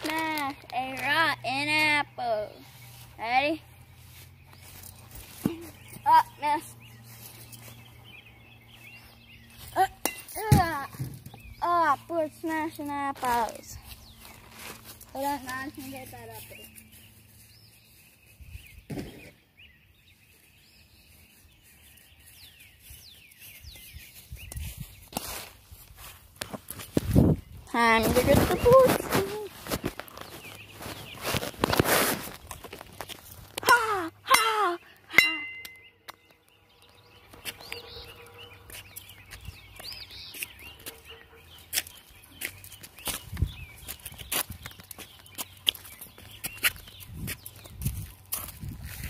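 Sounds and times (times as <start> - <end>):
birds chirping: 0.0 - 49.0
person crying out: 33.6 - 35.3
metal bat hitting ball: 35.1 - 35.9.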